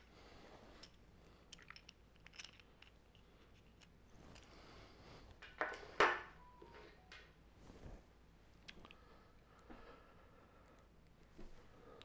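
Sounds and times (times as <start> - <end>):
small parts clicking: 0.7 - 4.6.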